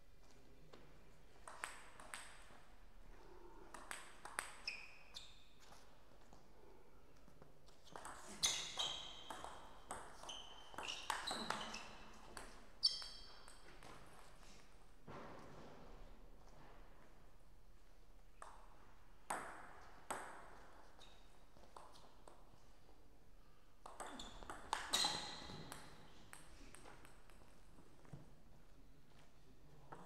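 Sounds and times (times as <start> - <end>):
table tennis ball hits: 1.5 - 2.6, 3.7 - 4.7, 7.9 - 14.2, 23.8 - 27.4.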